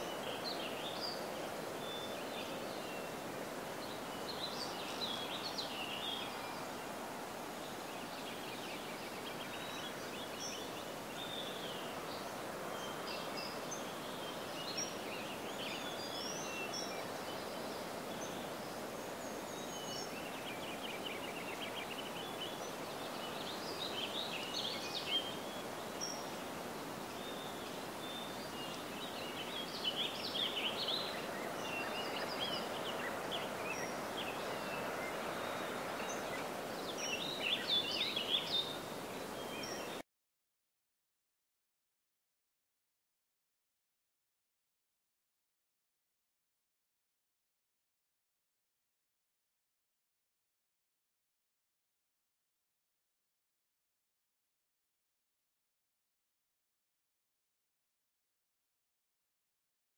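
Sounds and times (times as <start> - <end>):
songbirds chirping: 0.0 - 40.0.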